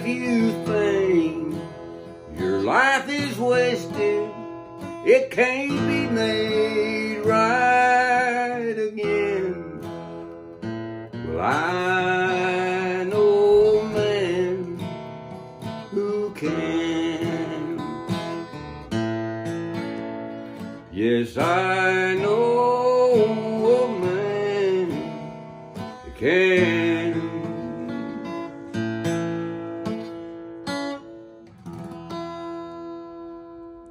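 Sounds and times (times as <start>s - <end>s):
man singing gospel song: 0.0s - 9.9s, 11.2s - 15.0s, 15.8s - 18.5s, 20.9s - 25.3s, 26.1s - 28.5s
strummed acoustic guitar: 0.0s - 33.9s.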